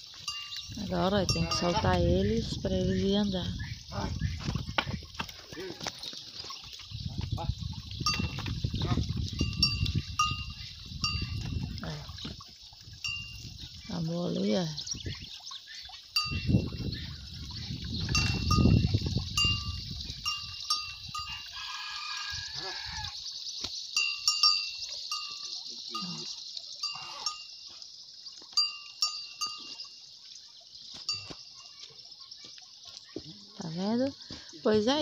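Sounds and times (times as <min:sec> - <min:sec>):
cow bell clinking: 0:00.0 - 0:02.6, 0:07.9 - 0:12.2, 0:13.0 - 0:14.4, 0:16.1 - 0:17.1, 0:17.9 - 0:22.2, 0:23.9 - 0:27.8, 0:28.4 - 0:30.2, 0:31.0 - 0:32.0.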